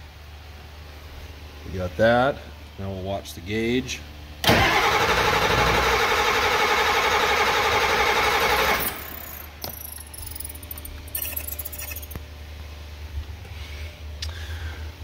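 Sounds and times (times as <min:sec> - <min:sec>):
diesel engine cranking on starter: 0:04.4 - 0:12.1.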